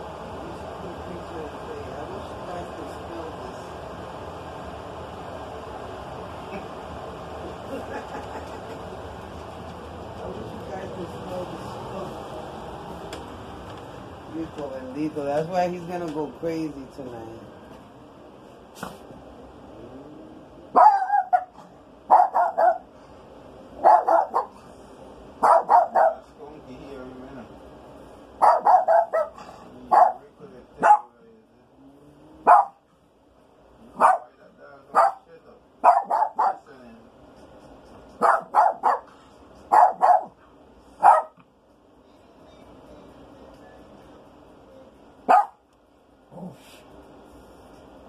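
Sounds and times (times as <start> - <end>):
small dog barking: 20.7 - 22.9, 23.8 - 24.6, 25.4 - 26.2, 28.4 - 30.2, 30.8 - 31.1, 32.4 - 32.8, 34.0 - 36.7, 38.2 - 39.1, 39.7 - 40.4, 41.0 - 41.4, 45.3 - 45.6.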